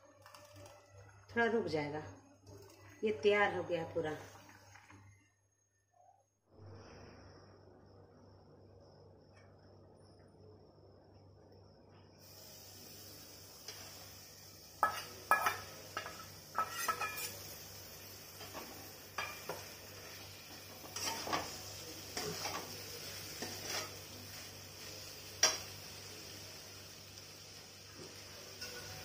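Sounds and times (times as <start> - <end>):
food sizzling in a pan: 12.2 - 29.0
spatula scraping and clanking pan: 14.8 - 25.8, 28.0 - 29.0.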